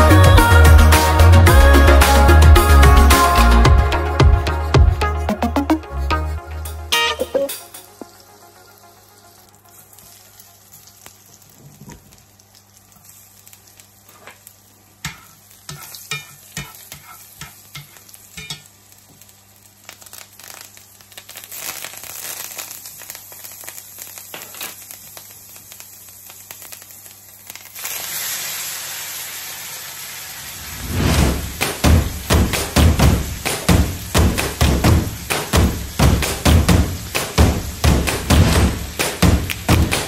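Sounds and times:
butter sizzling in a frying pan: 7.8s - 32.5s
meat searing with loud hiss: 7.8s - 40.0s
tongs clicking and tapping: 15.0s - 18.7s.

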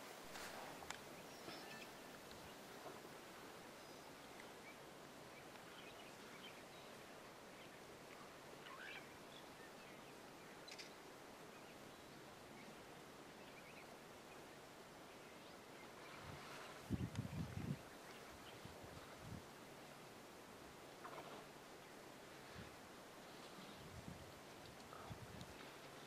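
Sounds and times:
faint bird chirps: 1.2s - 2.6s, 8.6s - 12.8s.

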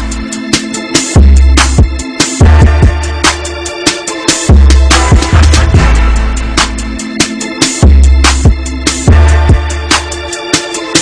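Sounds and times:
sharp percussion strikes: 1.0s - 11.0s
deep bass drum notes: 4.5s - 7.0s.

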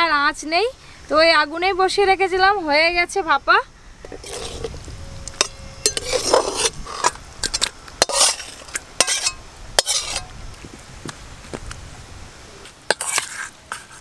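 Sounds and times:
metal spatula scraping wok: 4.0s - 10.3s, 12.9s - 14.0s.

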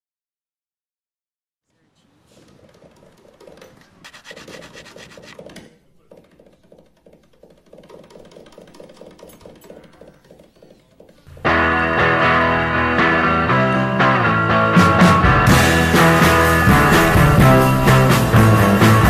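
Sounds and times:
grip tape scraping: 4.0s - 5.5s
rock music with guitar: 11.4s - 19.0s.

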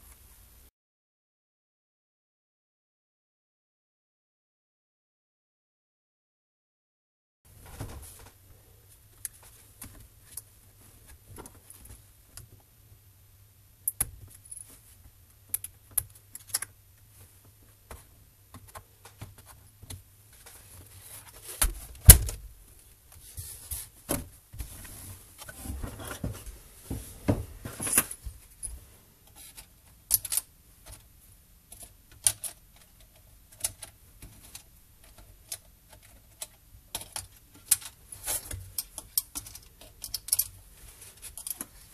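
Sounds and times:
laptop parts clicking and clattering: 15.5s - 16.8s, 29.3s - 31.1s, 31.7s - 41.8s.

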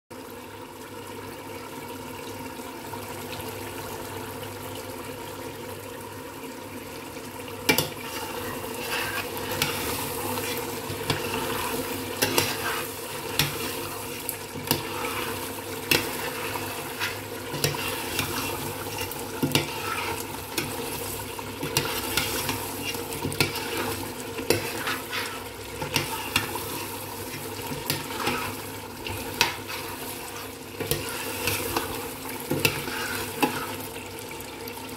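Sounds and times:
curry sizzling in a pot: 0.1s - 34.9s
metal spoon scraping a pot: 7.7s - 20.8s, 21.6s - 33.8s.

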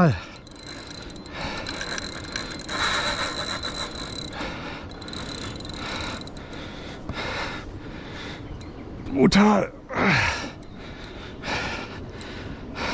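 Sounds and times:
fishing reel clicking: 0.0s - 6.8s.

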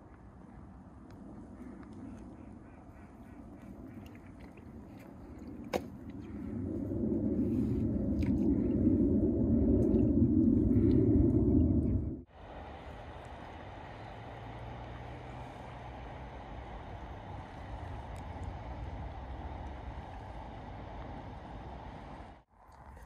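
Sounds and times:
wind: 0.0s - 23.0s
river water hiss: 12.3s - 22.4s.

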